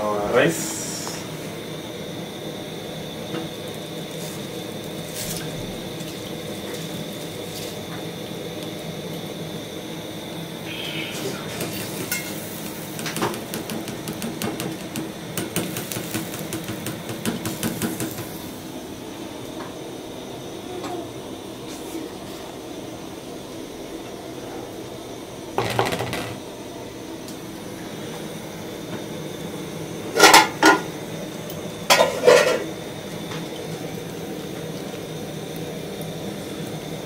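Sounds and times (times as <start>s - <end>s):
steady hiss: 0.0s - 3.2s, 6.3s - 19.3s.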